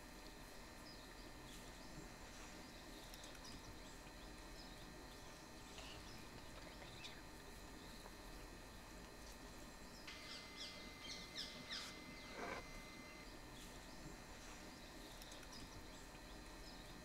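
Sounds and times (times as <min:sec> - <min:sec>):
faint outdoor ambience: 0:00.0 - 0:17.0.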